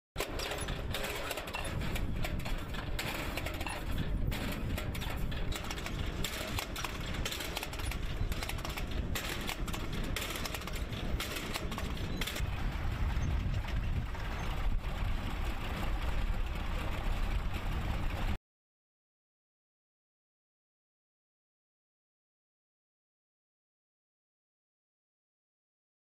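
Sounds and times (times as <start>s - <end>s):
tractor engine rumbling: 0.2s - 18.4s
transplanter rattling clatter: 0.2s - 18.4s.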